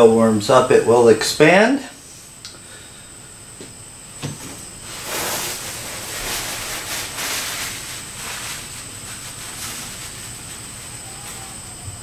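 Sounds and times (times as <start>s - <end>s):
paper towel rustling on casing: 4.8s - 11.8s.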